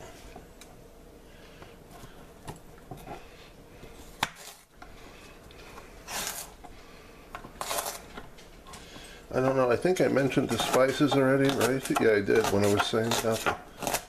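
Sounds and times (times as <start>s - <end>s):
celery being cut: 4.2s - 4.6s, 6.1s - 6.6s, 7.6s - 8.1s, 10.2s - 14.0s.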